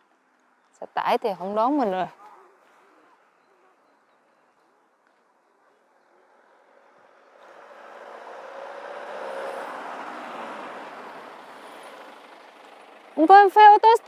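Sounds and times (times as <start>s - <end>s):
van driving approaching: 0.0s - 14.0s.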